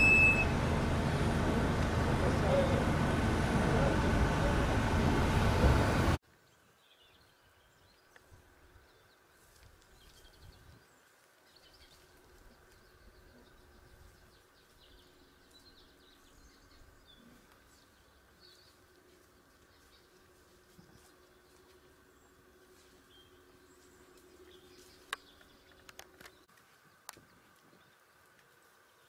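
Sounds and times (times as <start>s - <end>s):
loud rush with low rumble: 0.4s - 6.2s.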